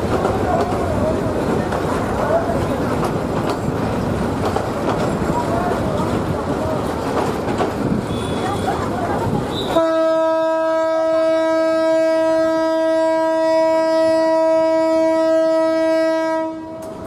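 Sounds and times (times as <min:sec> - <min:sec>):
locomotive horn blast: 0:09.5 - 0:16.9.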